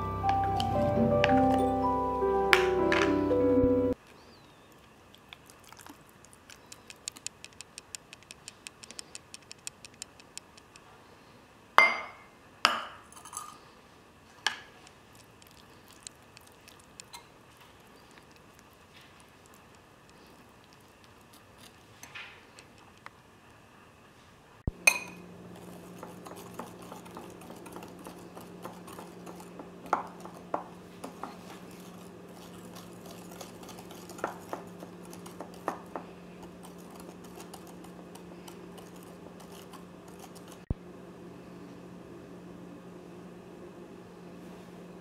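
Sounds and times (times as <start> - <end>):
steady low hum: 14.9 - 45.0
wire whisk clinking in glass bowl: 24.9 - 25.2.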